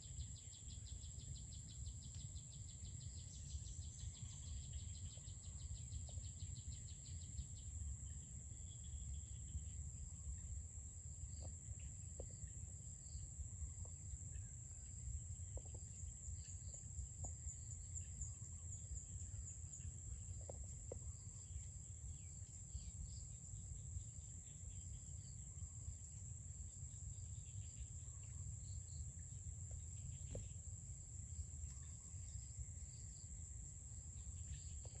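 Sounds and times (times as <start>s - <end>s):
faint bird chirps: 0.0s - 10.6s, 31.5s - 35.0s
insect trill: 0.0s - 35.0s.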